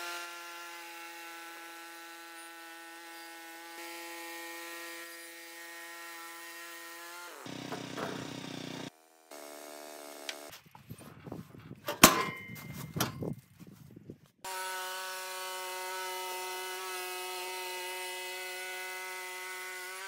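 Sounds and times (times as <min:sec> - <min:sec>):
sawmill running: 0:00.0 - 0:10.6, 0:14.5 - 0:20.0
metal clanks: 0:07.6 - 0:08.3, 0:11.8 - 0:13.3.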